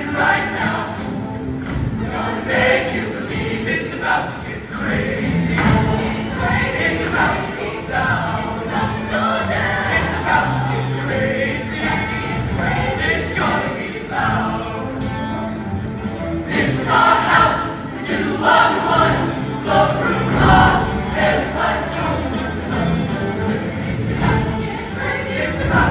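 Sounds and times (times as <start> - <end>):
choir singing pop song: 0.0 - 15.6, 16.2 - 25.9
live band playing: 4.6 - 25.9
bass notes and drum hits: 18.5 - 25.9.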